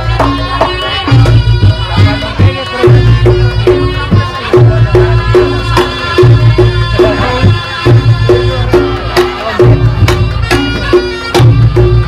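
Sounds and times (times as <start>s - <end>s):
gamelan drums and bronze keys: 0.0s - 12.0s.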